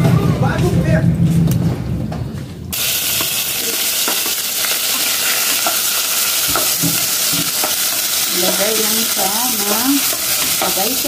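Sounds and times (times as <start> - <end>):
vegetables sizzling in hot oil: 2.7 - 11.0.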